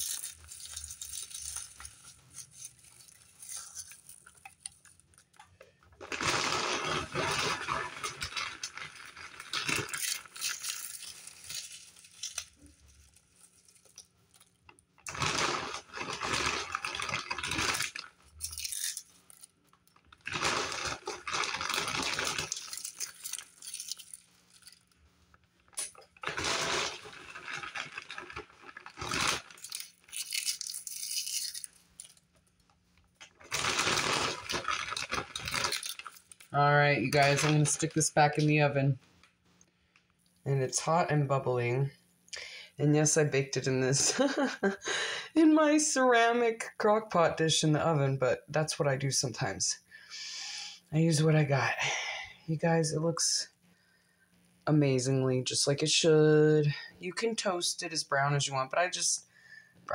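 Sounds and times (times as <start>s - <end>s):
potato chips crunched by hand: 0.0s - 24.9s, 25.8s - 32.3s, 33.2s - 38.5s.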